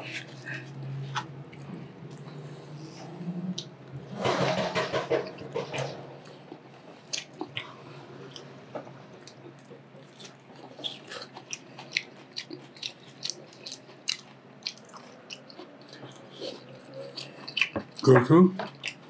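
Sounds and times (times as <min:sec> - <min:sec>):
chewing with wet mouth clicks: 0:06.2 - 0:08.5, 0:09.2 - 0:19.0.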